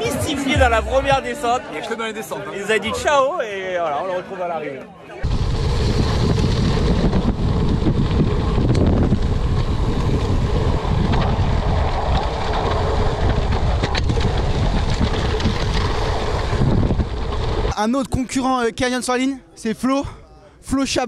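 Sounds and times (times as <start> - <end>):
wind buffeting microphone: 5.2 - 17.7
tyres rushing on loose gravel: 5.2 - 17.8.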